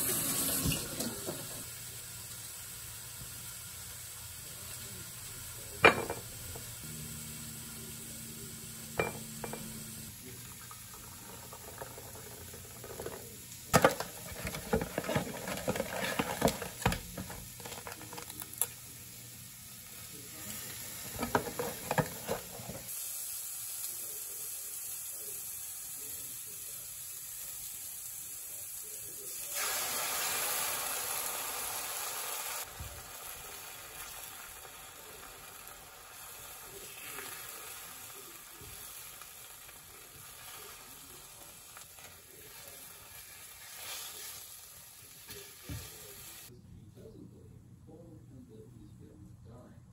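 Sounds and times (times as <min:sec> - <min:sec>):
food sizzling: 0:00.0 - 0:46.5
utensils clattering on a pan: 0:09.0 - 0:09.8, 0:12.8 - 0:18.4, 0:21.0 - 0:22.9.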